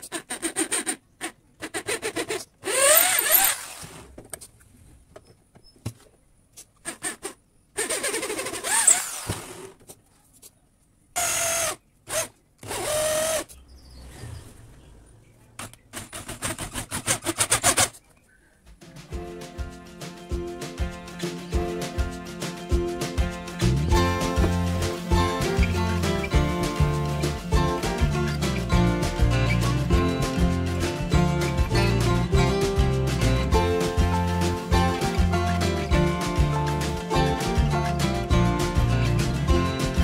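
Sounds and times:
drill boring into wood: 0:00.0 - 0:04.0, 0:06.9 - 0:09.7, 0:11.2 - 0:13.5.

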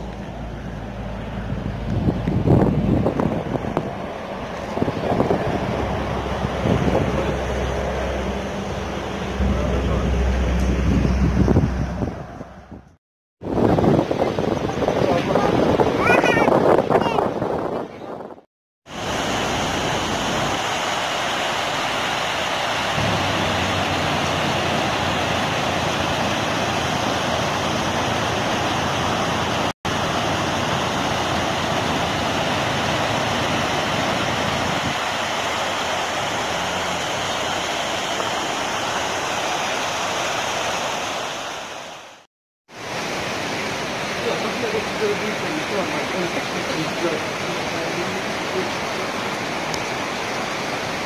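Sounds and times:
stream rushing over rocks: 0:00.0 - 0:11.5, 0:18.9 - 0:51.0.

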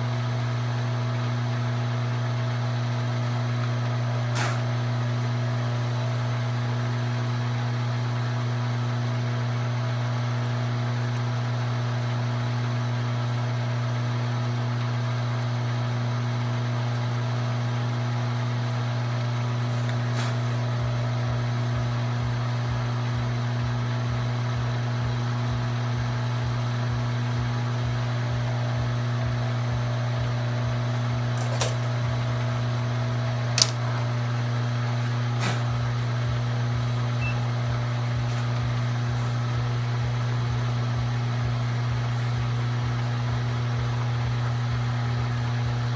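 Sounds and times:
milling machine humming: 0:00.0 - 0:45.9
rapid low pulsing: 0:34.9 - 0:45.9.

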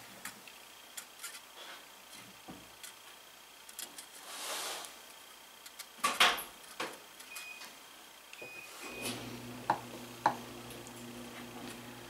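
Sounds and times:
soft hiss: 0:00.0 - 0:06.0.

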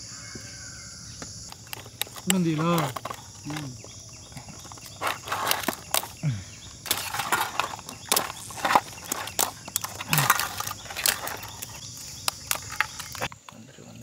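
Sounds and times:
high insect drone: 0:00.0 - 0:14.0
shells clattering in a metal basin: 0:06.9 - 0:13.3.

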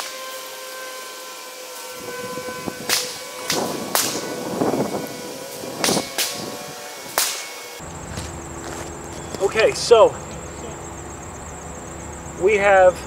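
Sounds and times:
footsteps on dry ground: 0:07.8 - 0:09.8.

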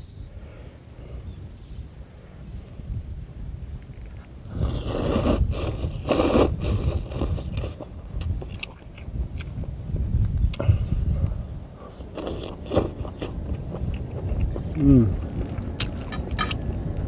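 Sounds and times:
low wind rumble on microphone: 0:00.0 - 0:17.0
person slurping noodles: 0:04.5 - 0:07.9, 0:12.0 - 0:15.1
wet chewing clicks: 0:05.5 - 0:09.6, 0:12.0 - 0:16.6.

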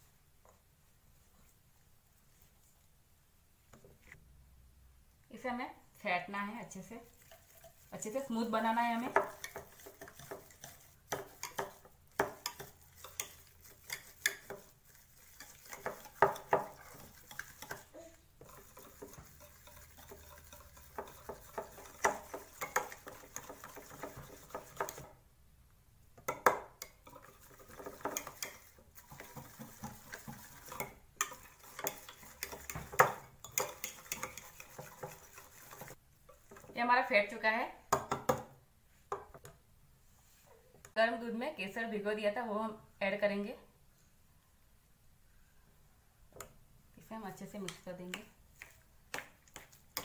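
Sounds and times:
whisk clinking against glass bowl: 0:08.9 - 0:25.1, 0:26.3 - 0:36.7.

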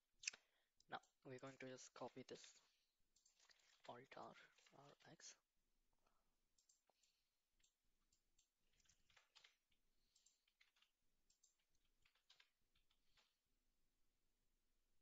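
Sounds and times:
keyboard and mouse clicks: 0:00.2 - 0:05.0, 0:06.6 - 0:13.4.

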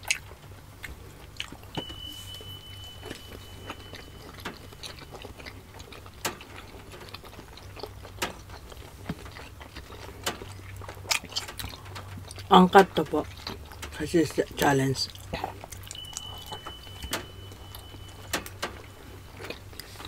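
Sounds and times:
chewing soft dumplings: 0:00.0 - 0:20.0
thin high tone: 0:01.7 - 0:06.0, 0:15.8 - 0:20.0.

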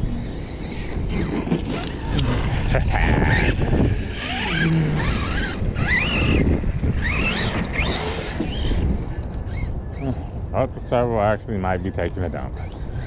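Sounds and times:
electric motor whining: 0:00.0 - 0:10.4
steady low rumble: 0:02.0 - 0:07.8.

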